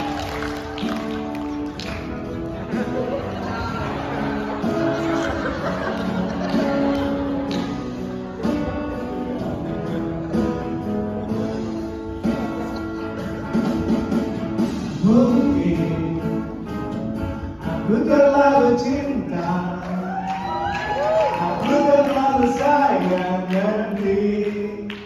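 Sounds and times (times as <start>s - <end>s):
rhythmic accompaniment: 0.0s - 25.0s
men singing in harmony: 17.4s - 20.0s.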